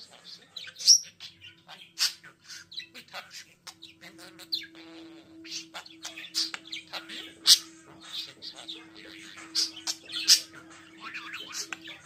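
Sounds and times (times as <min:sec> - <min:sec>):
budgerigar chirping: 0:00.0 - 0:12.0
loud sharp bird chirp: 0:05.4 - 0:12.0.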